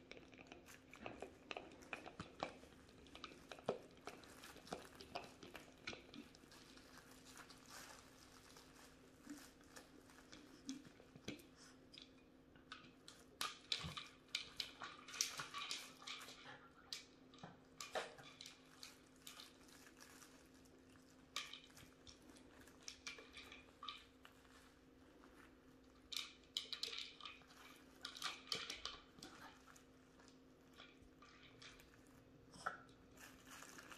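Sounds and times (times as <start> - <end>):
puppies chewing treats: 0.0 - 33.9.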